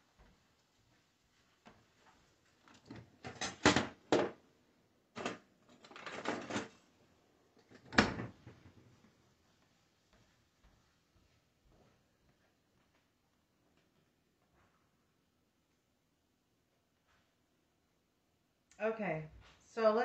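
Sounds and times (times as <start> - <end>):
kitchen knocks and clatter: 2.8 - 4.4, 5.2 - 6.8.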